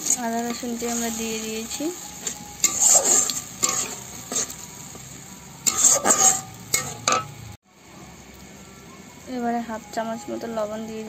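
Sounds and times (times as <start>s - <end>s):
metal spatula scraping pan: 0.0s - 4.6s, 5.6s - 7.4s
hot oil sizzling: 0.0s - 11.0s.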